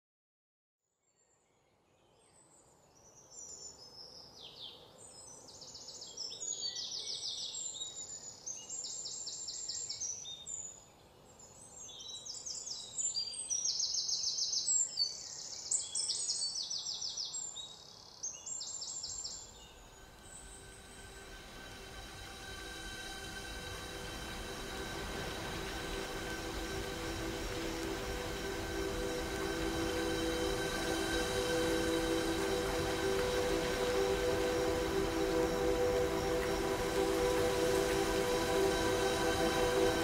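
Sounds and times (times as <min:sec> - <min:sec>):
faint background hiss: 0:01.1 - 0:40.0
low steady hum: 0:19.6 - 0:40.0.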